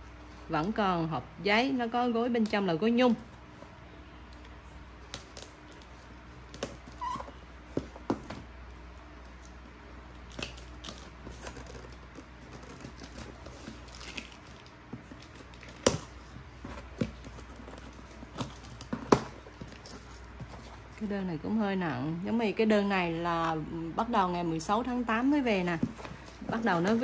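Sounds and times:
boxes and packaging handled: 0.0 - 21.5, 25.1 - 27.0.

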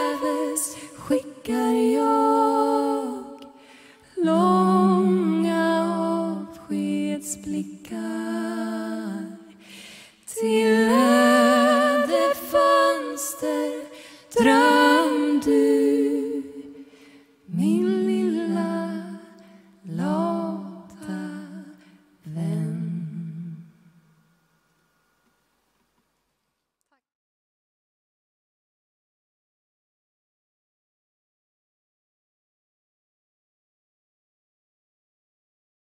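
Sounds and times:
two women singing in harmony: 0.0 - 24.2
breaths between phrases: 3.6 - 4.1, 9.6 - 10.3, 16.8 - 17.4.

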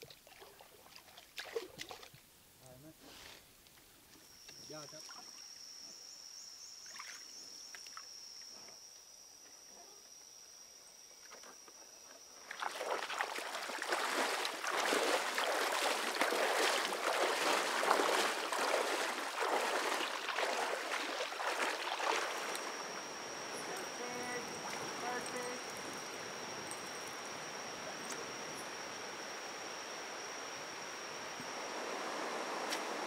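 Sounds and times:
wading through shallow water: 0.0 - 2.2, 12.4 - 28.8
high-pitched insect drone: 4.1 - 33.0.

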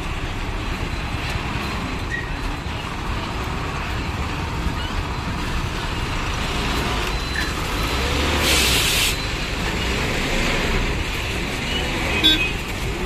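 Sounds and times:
truck diesel engine rumbling: 0.0 - 13.0.

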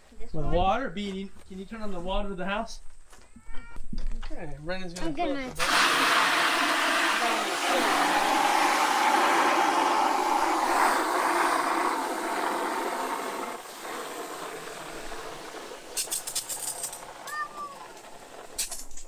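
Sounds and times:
hose water splashing into bucket: 5.6 - 19.0.

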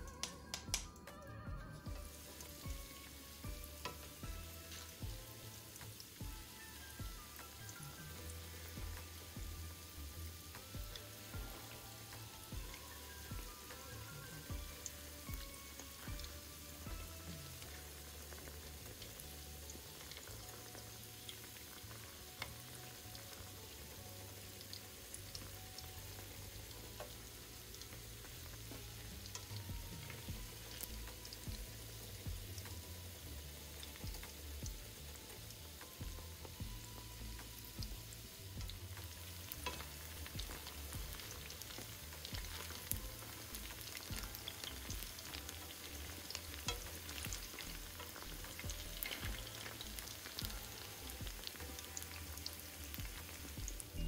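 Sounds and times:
tongs clicking in pan: 0.0 - 1.0, 3.8 - 5.0, 38.6 - 53.5
food deep-frying in hot oil: 0.0 - 54.0.

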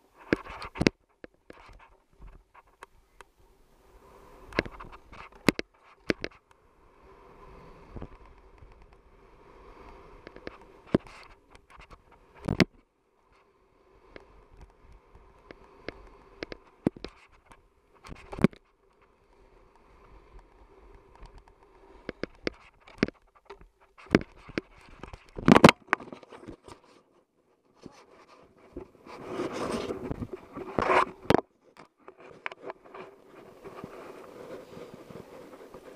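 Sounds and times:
snowboard scraping over snow: 3.0 - 5.5, 6.7 - 12.5, 27.9 - 31.3, 32.2 - 35.9.

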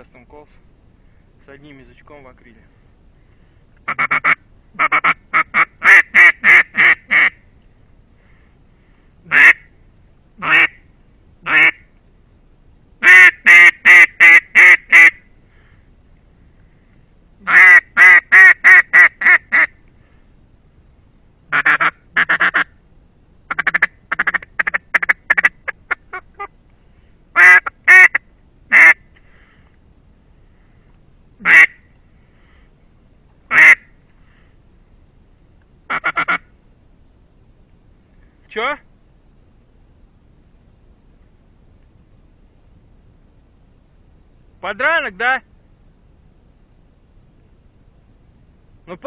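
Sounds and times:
duck call quacks: 3.9 - 7.4, 9.3 - 9.7, 10.4 - 10.8, 11.4 - 11.8, 13.0 - 15.2, 17.4 - 19.7, 21.5 - 22.7, 23.5 - 26.5, 27.4 - 29.0, 31.4 - 31.8, 33.5 - 33.9, 35.9 - 36.5.

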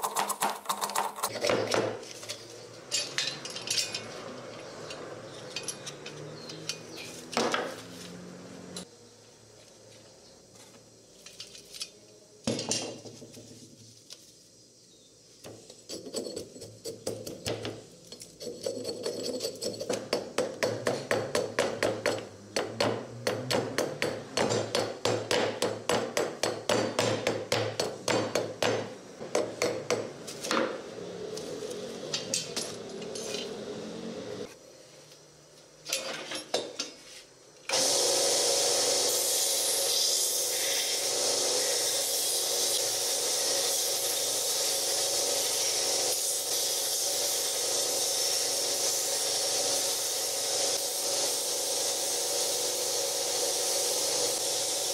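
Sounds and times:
hatchet chopping wood: 19.9 - 30.6
belt grinder sanding wood: 37.7 - 54.9.

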